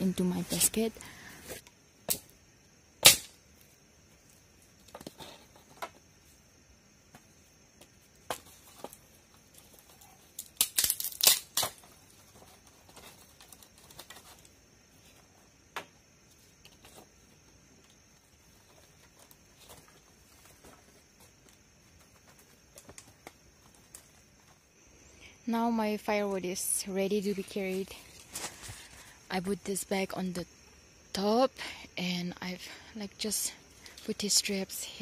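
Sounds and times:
firewood sticks clattering: 0:08.2 - 0:14.5.

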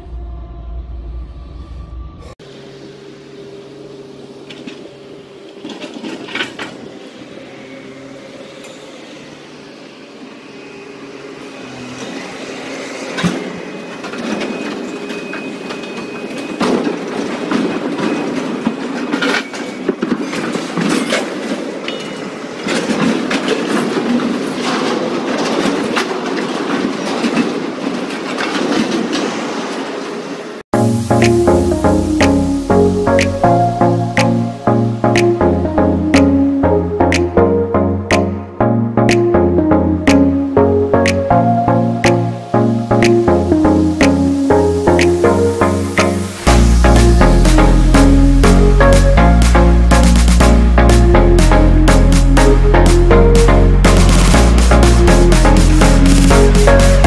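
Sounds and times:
freight boxcars clattering over rails: 0:05.5 - 0:07.0, 0:12.0 - 0:30.4.

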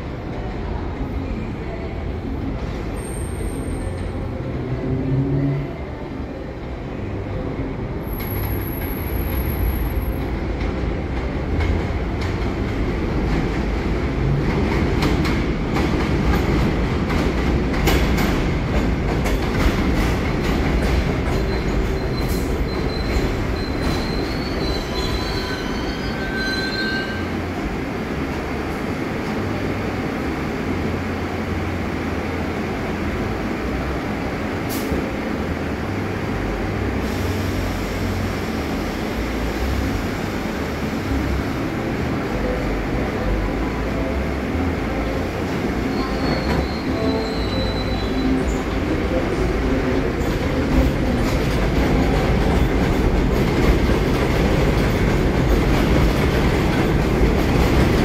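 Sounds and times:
train wheels rumbling on rails: 0:07.0 - 0:58.0
train wheel squeal: 0:21.3 - 0:27.4, 0:45.8 - 0:48.8.

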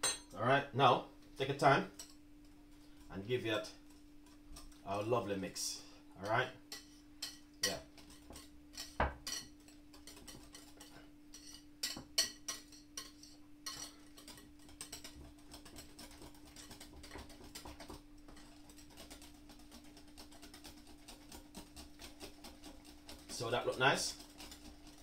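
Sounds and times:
whisk clicking against glass bowl: 0:06.7 - 0:25.0.

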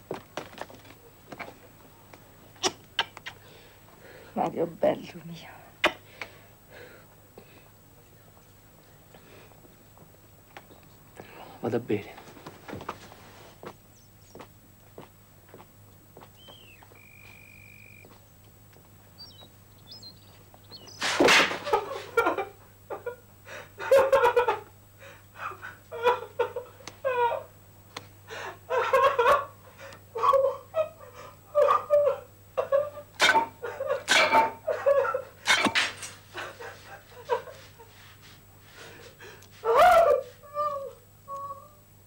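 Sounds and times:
man sobbing: 0:23.5 - 0:27.5.

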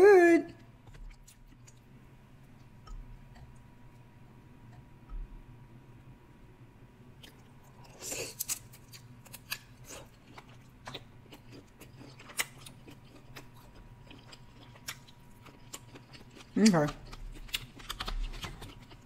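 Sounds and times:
biting and chewing: 0:07.2 - 0:19.0.

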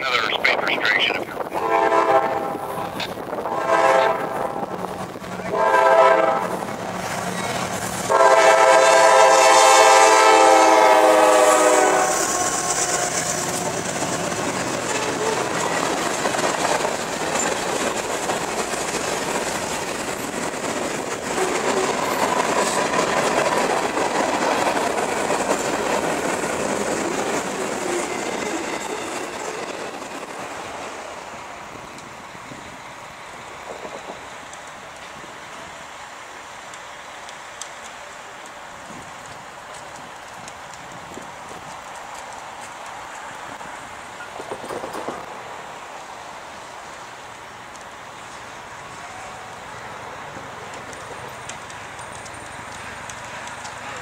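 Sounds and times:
locomotive air horn blasts: 0:01.6 - 0:04.8, 0:05.5 - 0:06.6, 0:08.1 - 0:13.8
wheels clacking over rail joints: 0:11.0 - 0:31.1, 0:36.7 - 0:45.5, 0:47.7 - 0:54.0.

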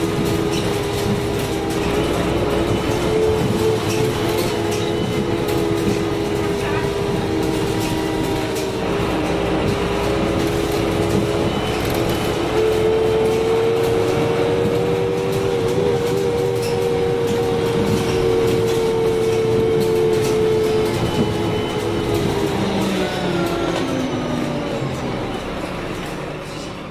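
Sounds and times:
bus drivetrain whine: 0:00.0 - 0:26.9
engine and road rumble: 0:00.0 - 0:26.9.

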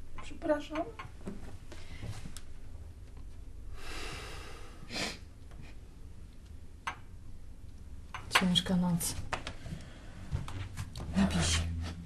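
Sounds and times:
person breathing out: 0:03.8 - 0:05.2
sharp sniff: 0:03.8 - 0:05.3.

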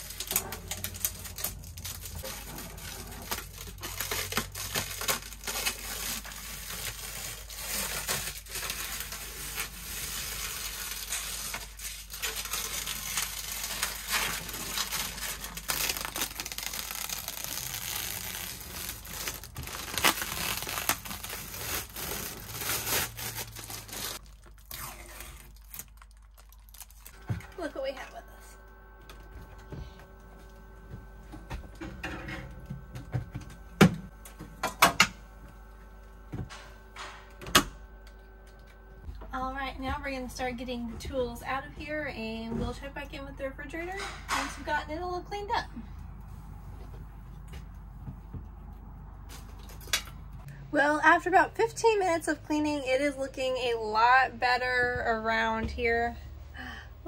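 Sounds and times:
plastic film crackling and tearing: 0:00.0 - 0:27.2.

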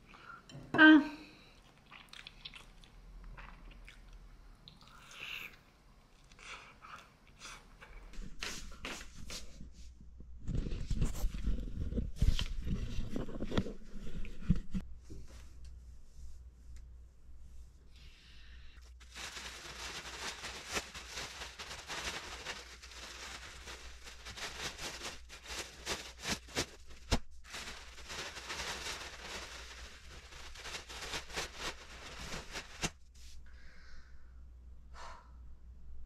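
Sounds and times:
plastic bags and clothing rustling: 0:18.8 - 0:33.4.

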